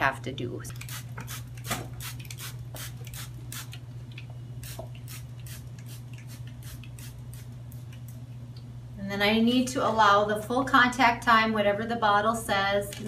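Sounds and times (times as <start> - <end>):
spray bottle hissing sprays: 0.7 - 3.8.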